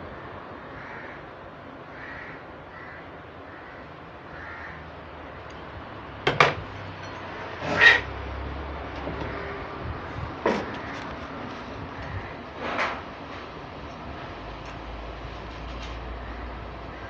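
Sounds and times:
crows cawing faintly: 0:00.1 - 0:05.6, 0:09.1 - 0:13.0, 0:15.7 - 0:17.0.

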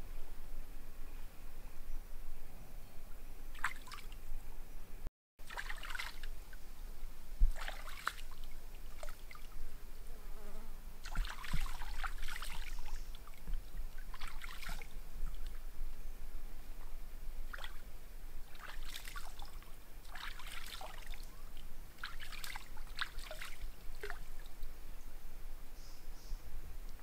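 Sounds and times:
water splashing and trickling: 0:03.5 - 0:04.2, 0:05.4 - 0:06.7, 0:07.4 - 0:09.7, 0:11.0 - 0:15.6, 0:17.5 - 0:24.7.

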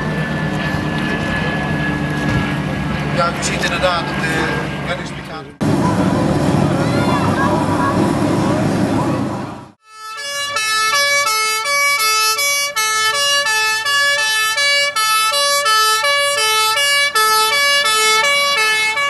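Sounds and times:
fire engine two-tone siren: 0:00.0 - 0:03.2, 0:09.8 - 0:19.0.

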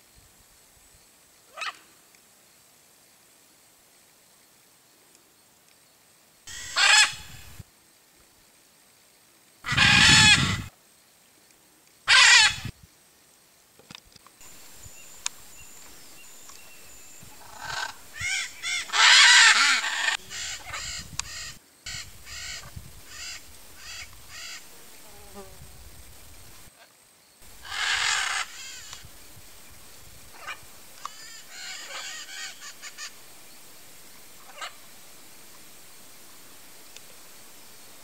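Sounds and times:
macaw soft calls: 0:01.5 - 0:02.0, 0:06.5 - 0:07.6, 0:09.7 - 0:10.7, 0:12.1 - 0:12.7, 0:14.4 - 0:24.7, 0:27.5 - 0:29.1, 0:30.3 - 0:33.2, 0:34.4 - 0:34.9
macaw squawking: 0:06.5 - 0:07.5, 0:09.7 - 0:10.7, 0:12.1 - 0:12.7, 0:17.4 - 0:24.7, 0:27.6 - 0:29.1, 0:30.4 - 0:33.2.

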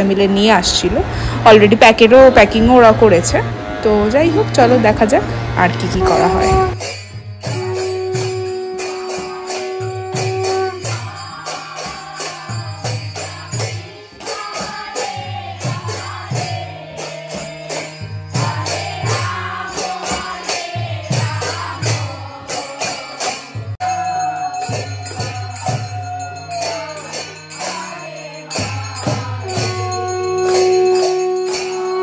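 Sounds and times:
hand-struck brass gong: 0:01.8 - 0:32.0
tambourines: 0:06.8 - 0:32.0
women singing together: 0:08.9 - 0:30.6
people clapping: 0:30.4 - 0:30.7.

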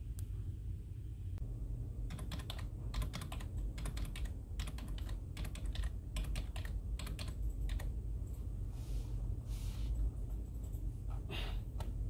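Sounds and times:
low hum: 0:00.0 - 0:12.0
typing on computer keyboard: 0:02.1 - 0:07.9.

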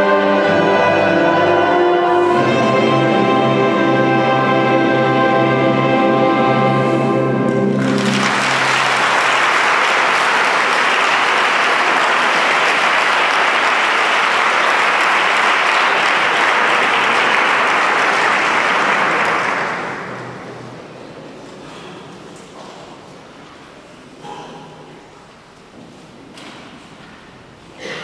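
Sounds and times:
choir and band chord: 0:00.0 - 0:10.5
audience applauding: 0:07.6 - 0:20.8.

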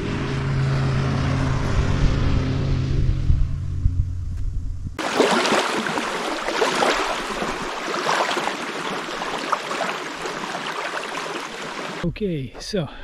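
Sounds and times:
distant motorboat engine droning: 0:05.0 - 0:12.0
waves lapping on shore: 0:05.0 - 0:12.0.

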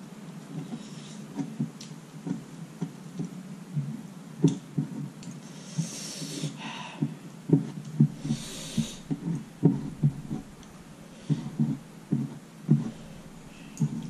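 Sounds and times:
breath hiss: 0:05.4 - 0:07.3, 0:08.0 - 0:14.0.

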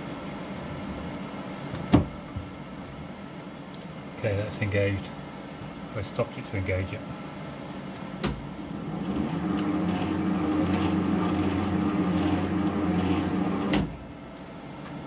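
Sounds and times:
lathe running with noisy gears: 0:08.5 - 0:13.9
tool scratching workpiece: 0:09.0 - 0:13.8.

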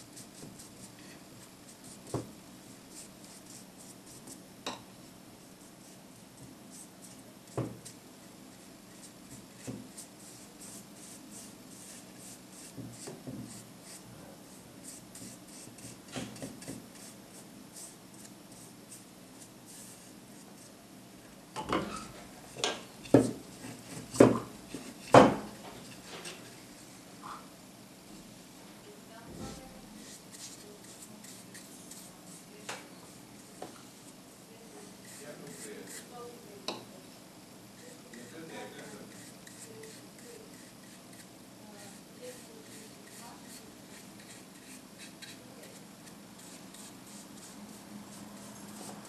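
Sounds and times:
paintbrush brushing on wood: 0:08.6 - 0:20.8, 0:29.4 - 0:34.2, 0:34.9 - 0:36.2, 0:37.8 - 0:49.0.

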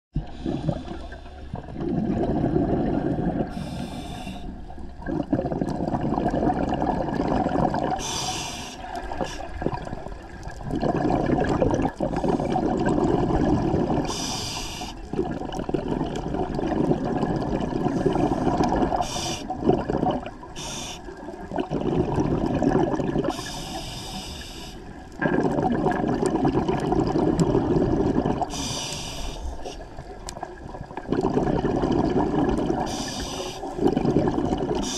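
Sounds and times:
exhaled bubbles rushing: 0:00.2 - 0:08.2, 0:08.8 - 0:14.4, 0:15.0 - 0:23.6, 0:24.9 - 0:28.7, 0:29.8 - 0:34.9
regulator inhalation hiss: 0:03.5 - 0:04.5, 0:08.0 - 0:09.6, 0:14.1 - 0:15.1, 0:19.0 - 0:19.5, 0:20.6 - 0:21.2, 0:23.3 - 0:25.0, 0:28.5 - 0:29.8, 0:32.9 - 0:33.8.

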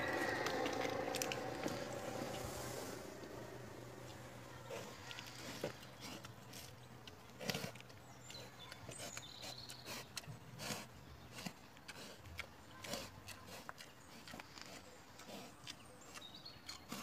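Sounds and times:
food crunching: 0:00.0 - 0:10.0
boar sniffing: 0:00.0 - 0:17.0.

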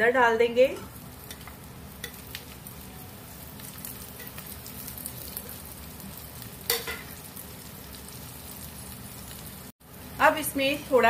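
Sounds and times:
potatoes sizzling in hot oil: 0:00.2 - 0:11.0
spoon stirring in a pan: 0:01.2 - 0:02.6.

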